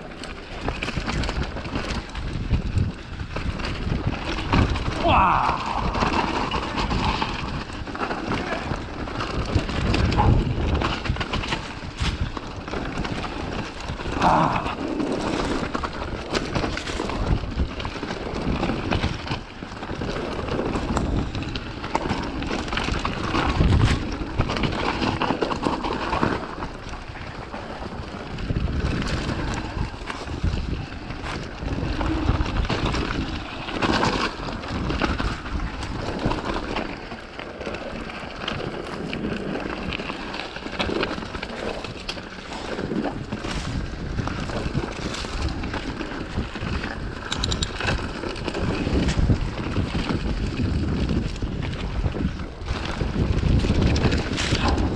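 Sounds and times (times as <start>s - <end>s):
bike rattling: 0.0s - 54.9s
tyres crunching over loose stones: 0.0s - 54.9s
wind rush on microphone: 0.0s - 54.9s.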